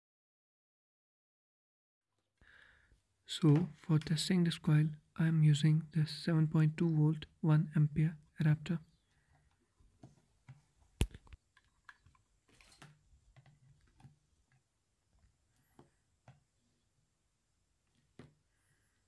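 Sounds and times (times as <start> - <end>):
adapter and cable handled: 9.3 - 14.7.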